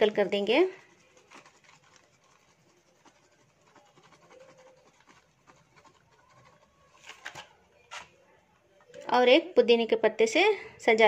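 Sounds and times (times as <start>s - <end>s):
spice shaken from box: 0.8s - 7.5s.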